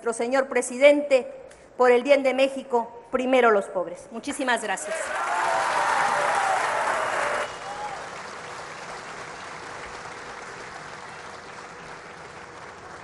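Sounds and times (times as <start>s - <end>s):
large crowd applauding: 4.8s - 13.0s.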